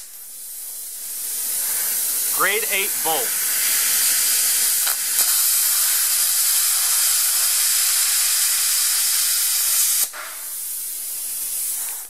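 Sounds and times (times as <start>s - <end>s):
plasma cutter hissing: 3.2s - 12.0s.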